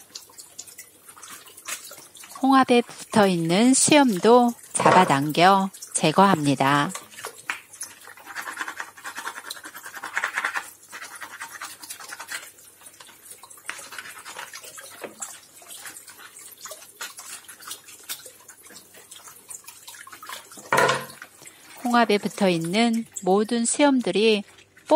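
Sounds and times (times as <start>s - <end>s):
trickling tap: 20.5s - 21.5s.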